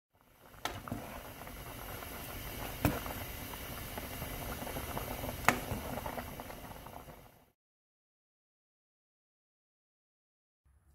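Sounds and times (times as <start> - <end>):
soup boiling and bubbling: 0.1 - 7.6.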